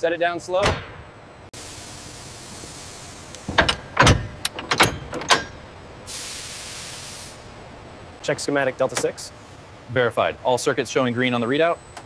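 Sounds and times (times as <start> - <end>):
burst of high hissing air: 1.6 - 3.4, 6.1 - 7.5
steady hiss: 1.6 - 4.6, 5.6 - 11.6
heavy load clunking and latching: 3.3 - 6.1.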